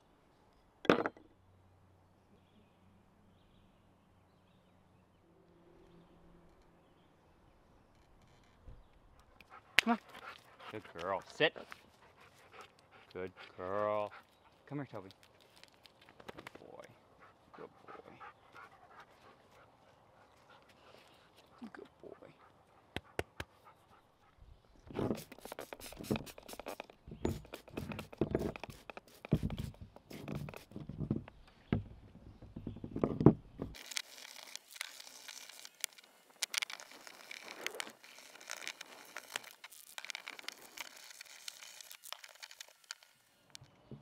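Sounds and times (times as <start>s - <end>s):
rag rubbing metal parts: 25.0s - 31.0s, 33.6s - 43.1s
brush scrubbing metal: 25.1s - 30.8s.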